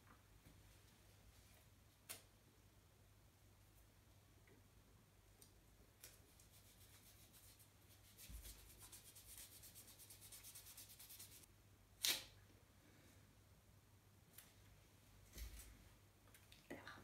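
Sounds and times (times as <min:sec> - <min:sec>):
wax strip scratching on skin: 0:06.1 - 0:12.2
wax strip ripping off: 0:12.0 - 0:12.4.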